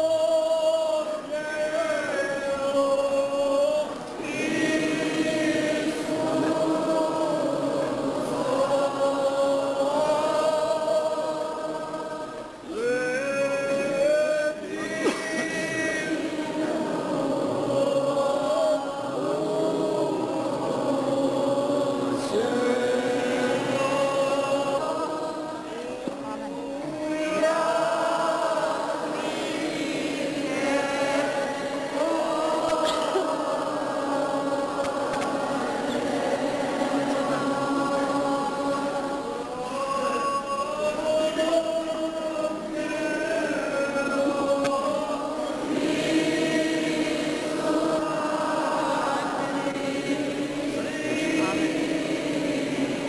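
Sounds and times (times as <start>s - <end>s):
choir singing a hymn: 0.0s - 53.0s.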